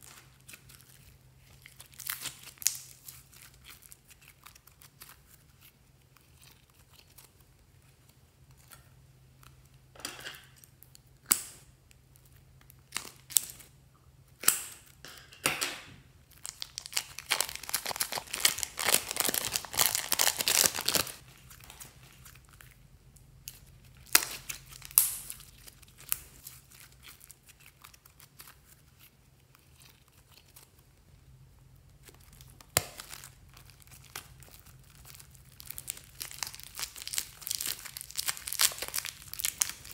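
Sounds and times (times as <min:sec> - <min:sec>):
plastic bags crinkling: 0:16.3 - 0:22.8, 0:32.2 - 0:39.9.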